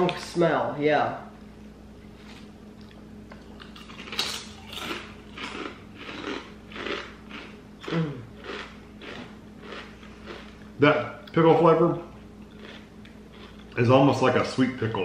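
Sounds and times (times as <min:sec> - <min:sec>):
potato chips being chewed: 0:02.8 - 0:11.4, 0:12.4 - 0:13.8.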